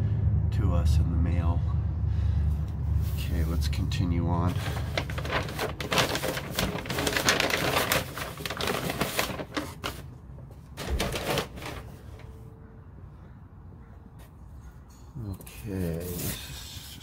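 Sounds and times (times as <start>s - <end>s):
packing paper crinkling: 4.5s - 12.4s.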